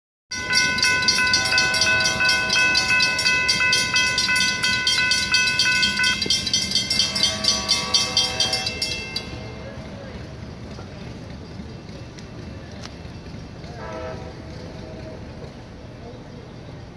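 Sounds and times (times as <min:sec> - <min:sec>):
lower-pitched bell ringing: 0:00.3 - 0:10.2
railroad crossing bells ringing: 0:00.3 - 0:16.9.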